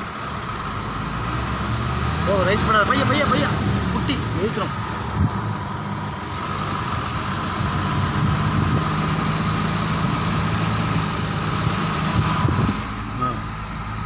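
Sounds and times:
vehicle engine idling: 0:00.0 - 0:14.0.

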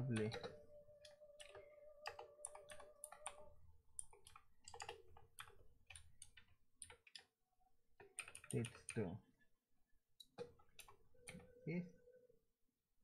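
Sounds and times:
keyboard typing: 0:00.0 - 0:07.4, 0:08.0 - 0:09.1.

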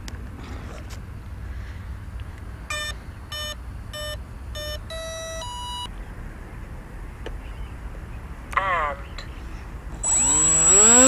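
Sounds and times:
longer rising tones: 0:10.0 - 0:11.0
short electronic beeps: 0:10.0 - 0:11.0.

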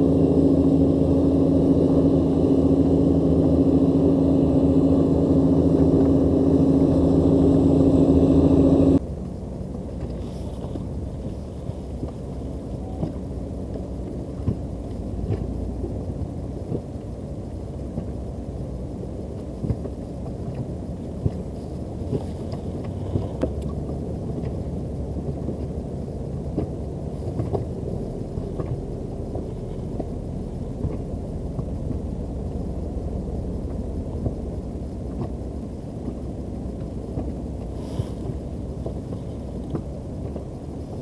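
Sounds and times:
boat engine rumble: 0:00.0 - 0:41.0
small knocks and clicks: 0:36.0 - 0:40.6.

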